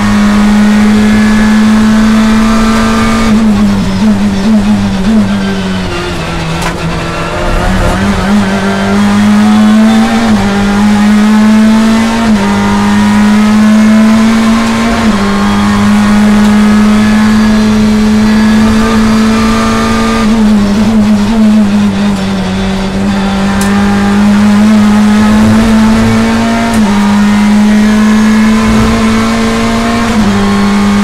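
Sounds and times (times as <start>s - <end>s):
race car engine accelerating: 0.0s - 31.0s
gear upshifts: 5.8s - 11.2s, 24.5s - 31.0s.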